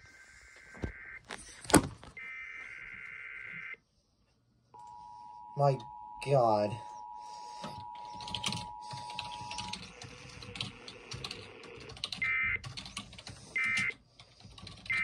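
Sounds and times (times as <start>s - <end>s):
two-tone alert signal: 4.8s - 10.0s
short bursts of data tones: 4.8s - 12.4s.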